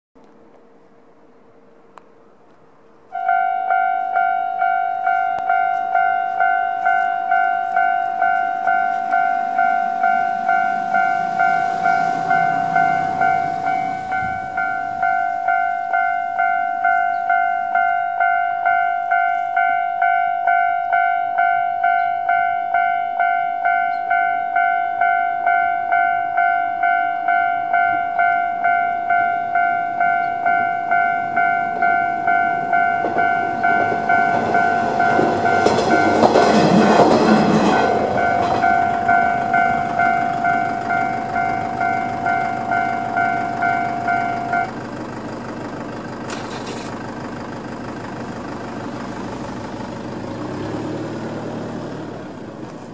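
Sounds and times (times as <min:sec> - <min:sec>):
diesel railcar passing: 0:00.2 - 0:52.9
road traffic: 0:00.2 - 0:52.9
level-crossing alarm dinging: 0:03.1 - 0:50.3
vehicle passing close: 0:08.2 - 0:15.4, 0:31.3 - 0:52.9.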